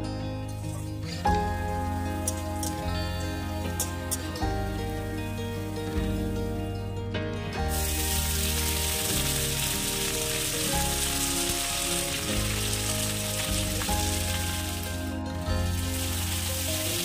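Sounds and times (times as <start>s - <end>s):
background music: 0.0s - 17.0s
greens sizzling in hot oil: 0.6s - 6.4s, 7.7s - 17.0s.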